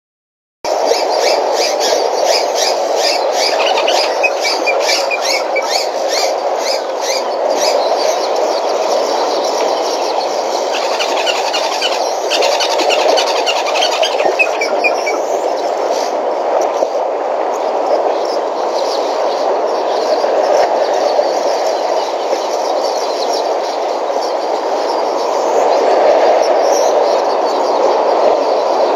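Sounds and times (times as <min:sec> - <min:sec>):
steady rushing noise: 0:00.7 - 0:28.9
birds chirping: 0:01.2 - 0:15.8.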